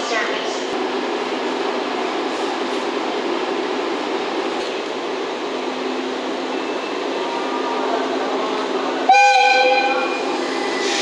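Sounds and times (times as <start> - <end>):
locomotive whistle: 9.0 - 11.0.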